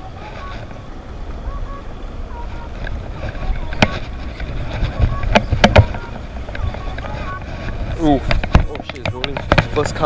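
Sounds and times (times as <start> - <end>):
low outdoor rumble: 0.0 - 10.0.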